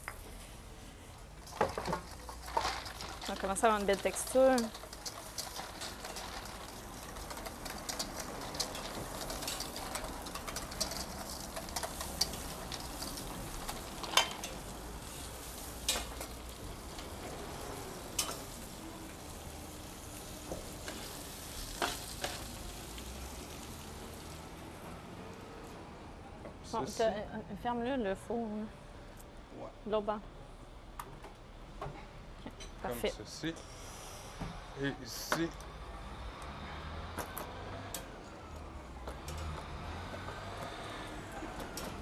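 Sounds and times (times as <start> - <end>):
sausages sizzling on a grill: 0.0 - 25.7
tongs clicking: 3.9 - 14.6.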